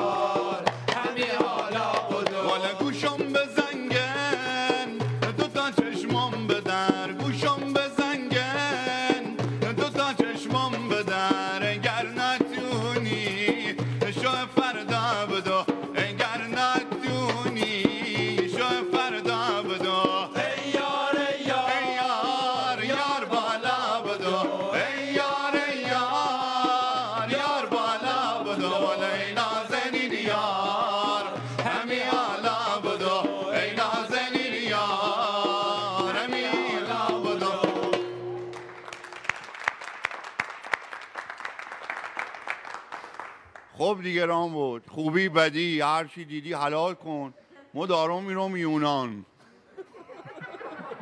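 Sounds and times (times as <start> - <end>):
audience applauding: 38.3 - 43.8.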